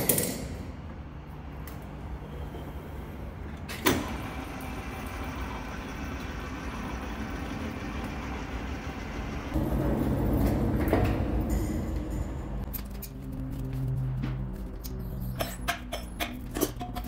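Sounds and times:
workshop machine noise: 0.0 - 17.0
loud low hum: 4.1 - 17.0.

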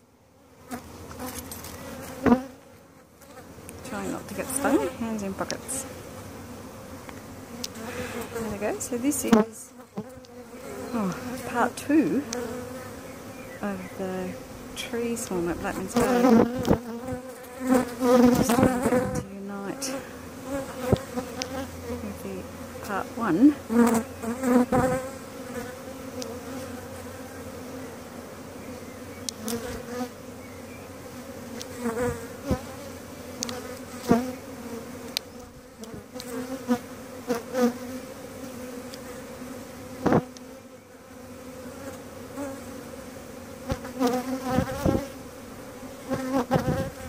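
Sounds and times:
humming swarm of bees: 0.0 - 47.0
single bee buzzing close: 0.5 - 47.0.

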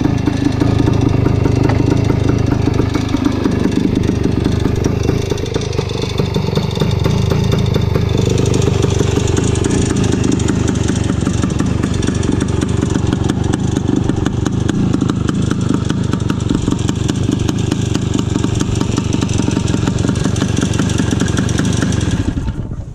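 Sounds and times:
motorcycle engine idling: 0.0 - 22.8.

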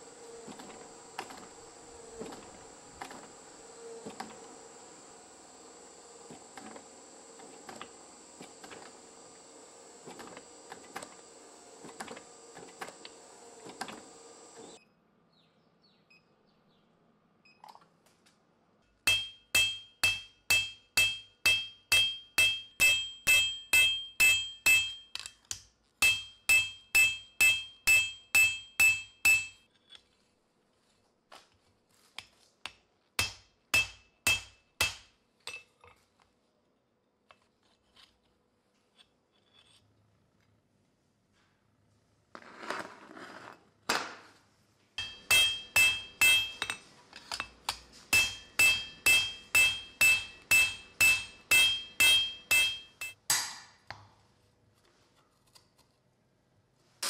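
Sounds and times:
machine humming: 0.0 - 14.8, 45.0 - 46.8
hammer striking steel on anvil: 19.0 - 25.4, 26.0 - 29.7, 33.2 - 35.6, 45.0 - 53.5.

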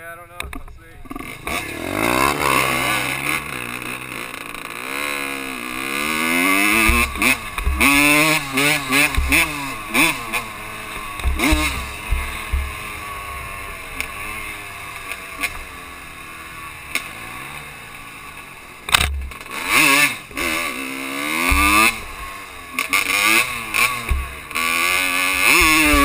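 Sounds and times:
dirt bike engine accelerating: 0.0 - 26.0
thumps on microphone: 6.8 - 8.1, 9.0 - 9.5, 11.2 - 12.7, 21.5 - 21.8.

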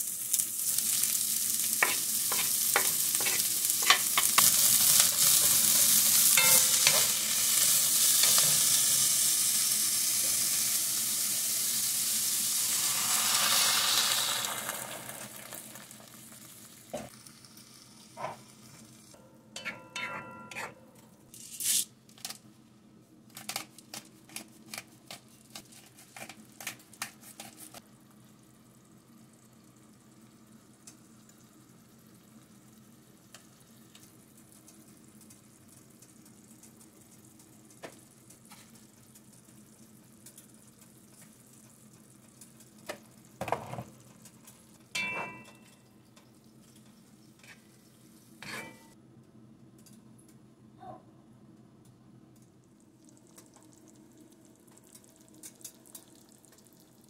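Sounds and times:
greens sizzling in oil: 0.0 - 19.2
wooden spatula scraping a pan: 1.8 - 4.3.

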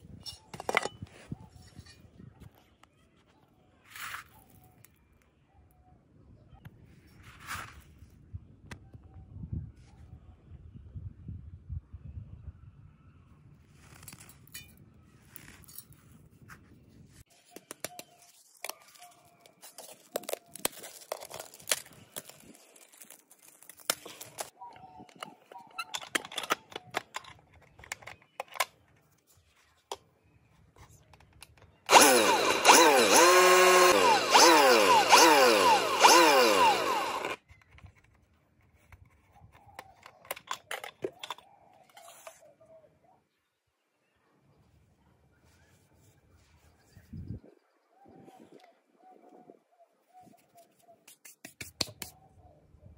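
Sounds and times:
rustle of ground corn in fingers: 3.8 - 4.6
angle grinder motor: 31.9 - 37.4.

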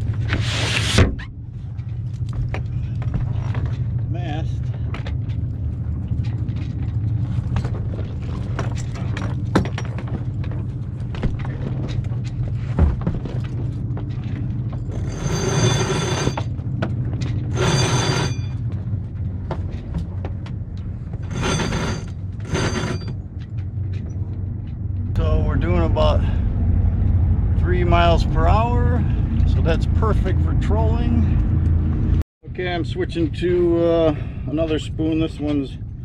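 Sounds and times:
steady low hum: 0.0 - 36.0
rigging clicks and knocks: 1.7 - 15.0.

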